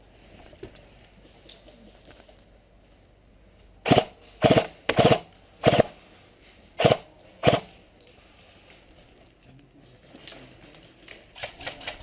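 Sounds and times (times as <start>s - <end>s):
airsoft rifle firing bursts: 3.9s - 6.0s, 6.8s - 7.7s.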